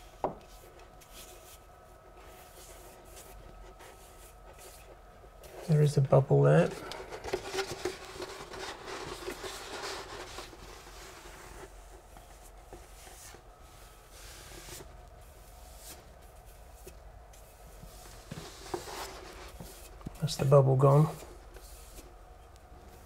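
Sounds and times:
brush sweeping over paper: 0.1 - 6.0, 7.8 - 22.2.

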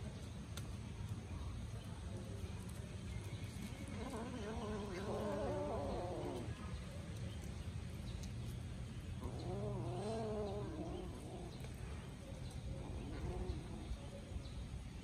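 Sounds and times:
kitten yowling growl: 4.0 - 6.6, 9.2 - 11.7, 12.8 - 14.0.

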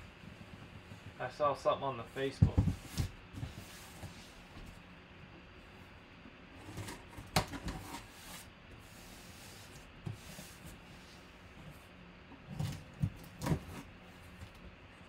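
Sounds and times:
scrapes and knocks on cardboard box: 2.2 - 4.8, 12.4 - 13.9.

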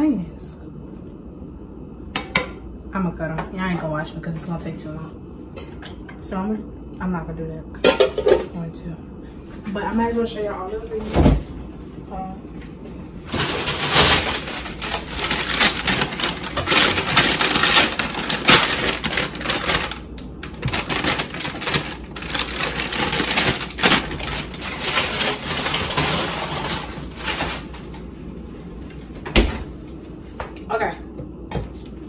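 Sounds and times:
plastic bags crinkling: 13.2 - 27.8.

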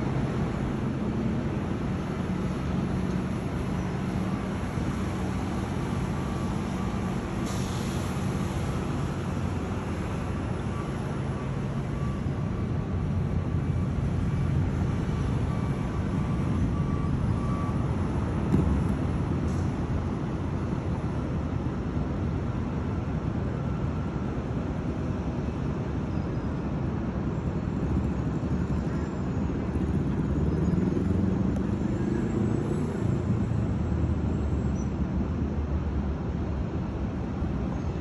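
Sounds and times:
brief hiss: 7.4 - 8.3.

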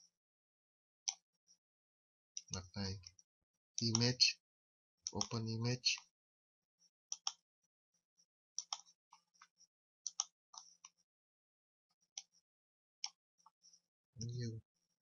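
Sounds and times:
computer mouse clicking: 3.8 - 4.2, 5.1 - 5.4, 7.1 - 7.4, 8.6 - 9.0, 10.1 - 10.8.

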